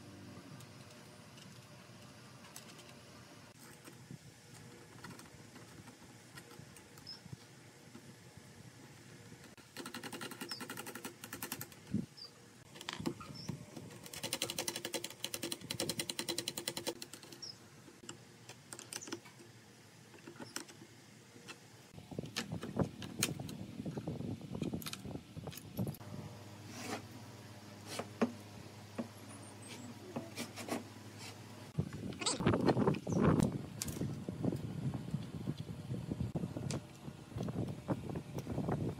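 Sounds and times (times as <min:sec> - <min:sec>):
rapid metallic clicking of nuts: 0:09.5 - 0:11.9, 0:13.9 - 0:19.6.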